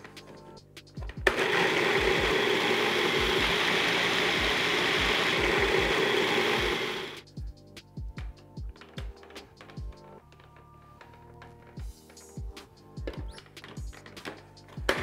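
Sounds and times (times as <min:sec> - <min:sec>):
food processor motor running: 0:01.2 - 0:07.2.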